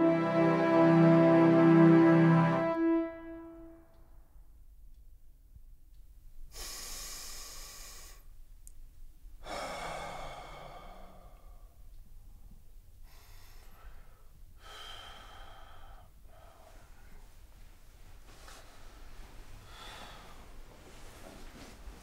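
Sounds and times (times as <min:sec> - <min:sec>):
person breathing slowly and deeply: 0:06.5 - 0:08.3, 0:09.4 - 0:11.9, 0:13.0 - 0:17.4, 0:18.5 - 0:21.7.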